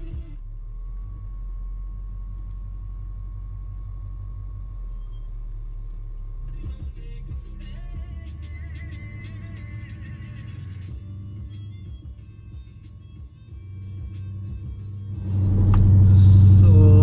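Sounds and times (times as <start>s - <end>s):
music: 0.0s - 0.4s, 6.4s - 17.0s
pickup truck driving rumble: 2.4s - 17.0s.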